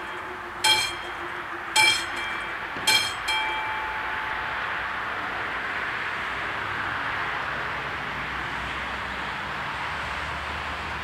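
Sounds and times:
low steady rumble: 0.0s - 5.7s
level crossing warning bell: 0.0s - 5.8s.

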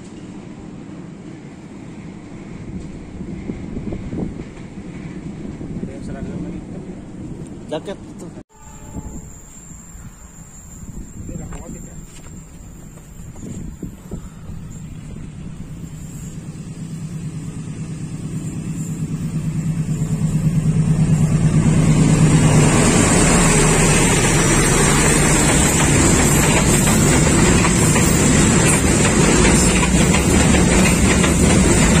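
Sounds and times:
freight wagons rumbling on rails: 0.0s - 32.0s
diesel locomotive engine throbbing: 8.6s - 32.0s.

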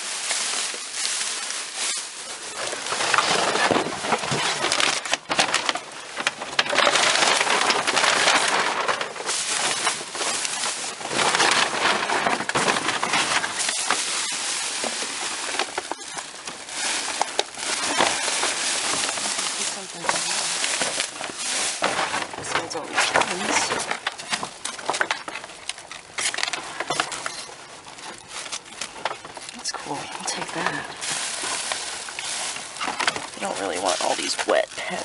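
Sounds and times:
packaging rustling and crunching: 0.0s - 35.0s.

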